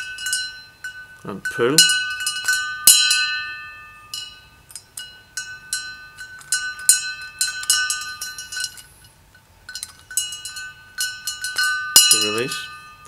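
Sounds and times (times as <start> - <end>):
metal tank ringing: 0.0 - 13.0.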